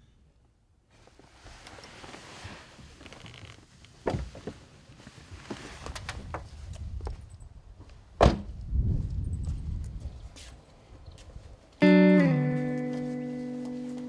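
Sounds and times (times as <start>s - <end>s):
knocks and rustling: 3.0s - 4.7s
car door slamming: 8.2s - 8.5s.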